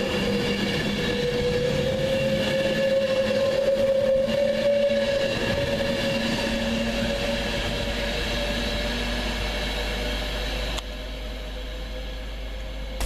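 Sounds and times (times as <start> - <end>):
distant train noise: 0.0 - 13.0
electric train passing: 0.0 - 13.0.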